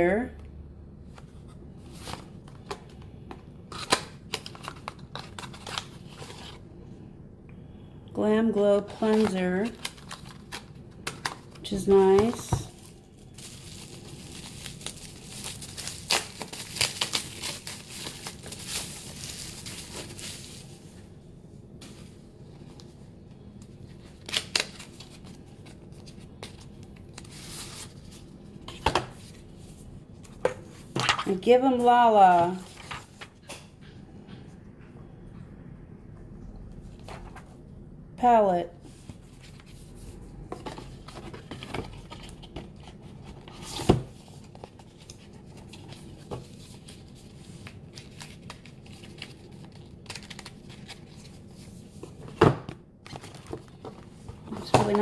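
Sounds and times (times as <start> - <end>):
packaging rustling and sliding: 12.2 - 21.1.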